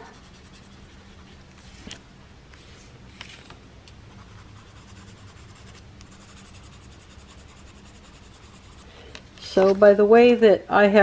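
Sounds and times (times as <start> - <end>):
colouring strokes on paper: 0.0 - 1.9, 4.1 - 9.0
sharp pencil ticks: 4.7 - 8.8.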